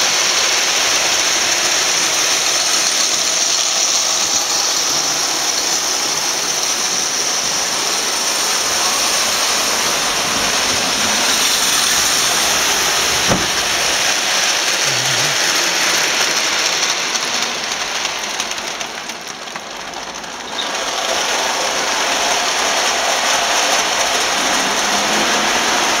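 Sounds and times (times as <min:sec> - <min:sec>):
toy train motors whirring: 0:00.0 - 0:26.0
train wheels rattling: 0:00.0 - 0:26.0
sharp knock: 0:13.2 - 0:13.8.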